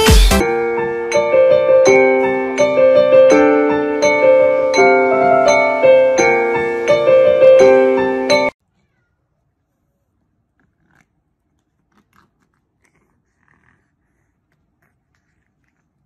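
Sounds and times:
gentle keyboard melody: 0.1s - 8.6s.

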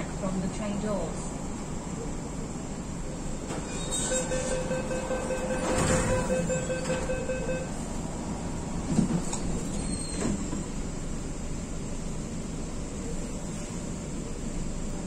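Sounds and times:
sliding doors shutting: 3.4s - 7.6s, 8.6s - 10.8s
door closing warning tone: 3.6s - 7.8s.

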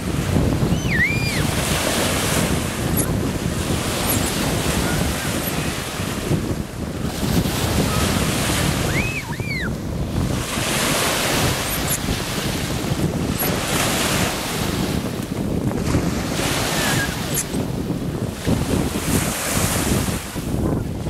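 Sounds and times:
waves breaking on shore: 0.0s - 21.0s
wind rumbling on microphone: 0.0s - 21.0s
short high cries: 0.7s - 1.4s.

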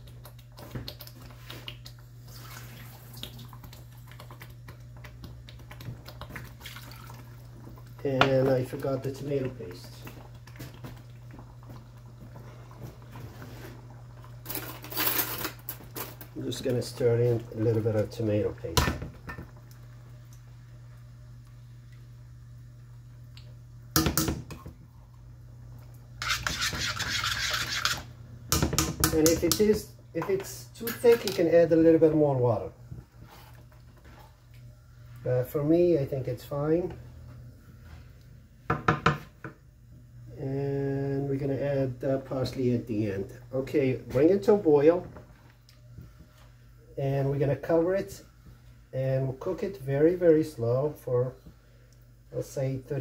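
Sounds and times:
thick sauce bubbling in a pan: 0.0s - 14.4s
spoon scraping pan: 26.2s - 28.1s.

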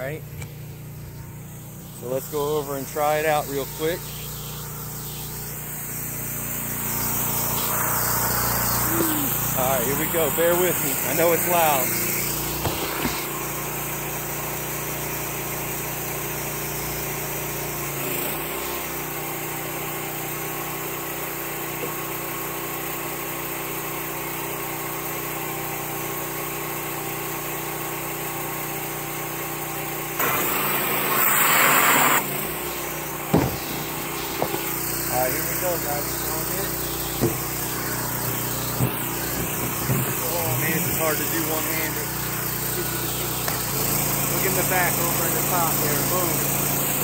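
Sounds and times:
pressure washer engine running: 0.0s - 47.0s
loud hiss: 0.4s - 13.5s, 30.2s - 47.0s
sharp knock: 33.3s - 34.7s, 37.2s - 37.5s.

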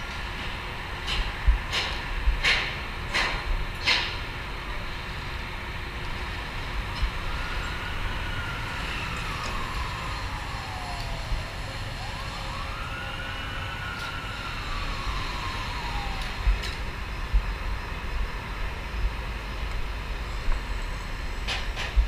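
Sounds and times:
siren wailing: 7.1s - 17.6s.

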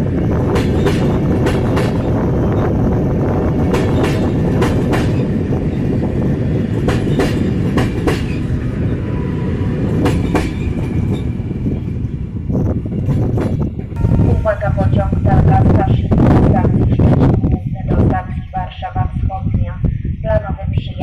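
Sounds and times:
train wheels clacking over rail joints: 0.5s - 2.1s, 3.7s - 5.3s, 6.8s - 8.5s, 10.0s - 11.3s.

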